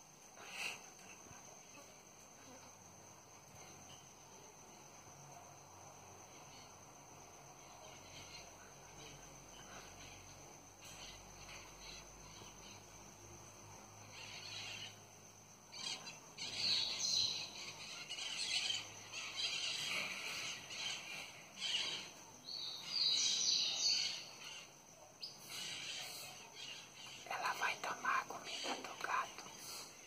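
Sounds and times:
birds chirping: 0:15.8 - 0:30.0.

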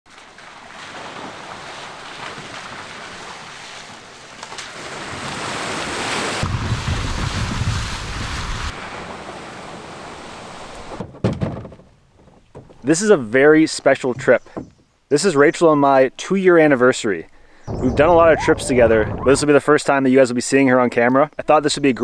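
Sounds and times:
car tyres splashing through puddles: 0:00.1 - 0:11.0
heavy low rumble: 0:17.6 - 0:19.8.

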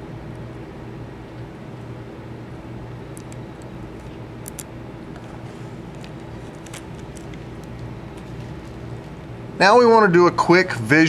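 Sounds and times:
low room hum: 0:00.0 - 0:11.0
tape peeling crackles: 0:03.1 - 0:09.4.

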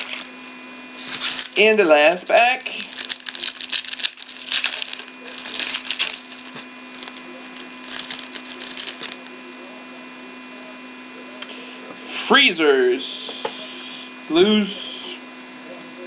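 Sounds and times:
cards rustling: 0:00.0 - 0:09.4
foil wrapper tearing and crinkling: 0:00.0 - 0:09.4
steady mains hum: 0:00.0 - 0:16.0.

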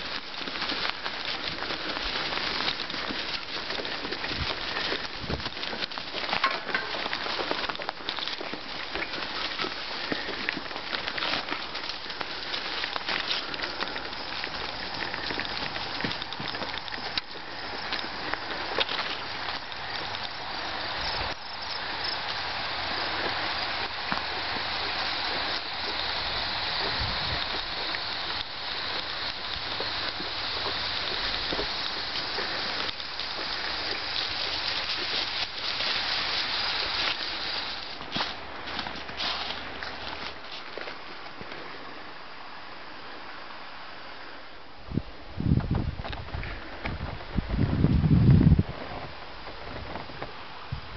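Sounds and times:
dog feet crunching leaves: 0:00.0 - 0:42.2
bicycle tyres crunching leaves: 0:00.0 - 0:50.9
faint ticks: 0:00.1 - 0:38.3.

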